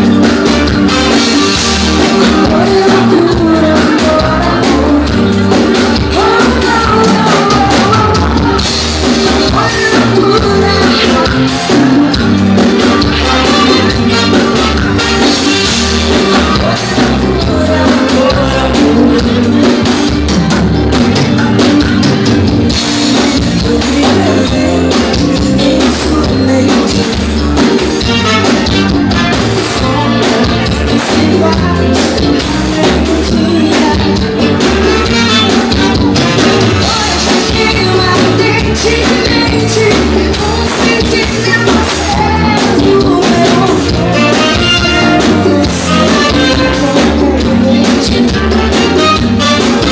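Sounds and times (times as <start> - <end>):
live band playing: 0.0 - 49.9
woman singing: 1.1 - 20.3, 21.2 - 49.9.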